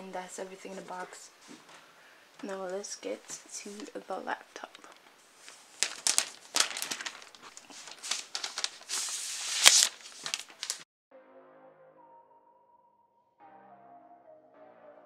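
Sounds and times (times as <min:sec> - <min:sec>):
plastic wrapping crinkling and tearing: 0:05.4 - 0:10.9.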